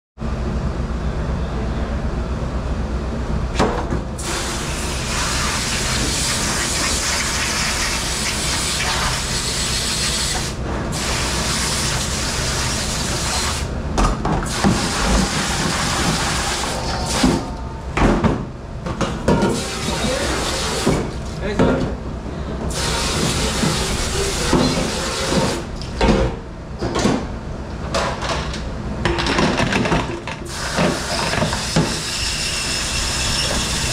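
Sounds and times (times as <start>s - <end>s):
water spraying into metal sink: 4.2s - 13.6s, 14.5s - 17.4s, 19.5s - 21.2s, 22.7s - 25.6s
steady low hum: 15.0s - 22.8s
items knocking and clattering in sink: 29.1s - 31.9s.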